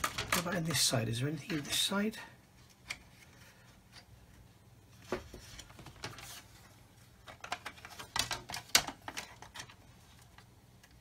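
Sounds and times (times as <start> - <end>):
plastic parts clicking together: 0.0 - 0.5.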